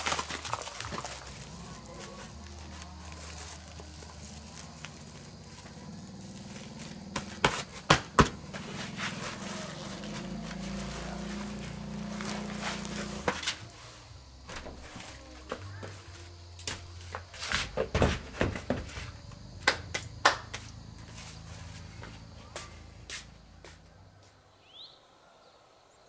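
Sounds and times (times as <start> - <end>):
plastic sack rustling and crinkling: 0.0 - 16.0
sharp snaps: 19.6 - 20.8.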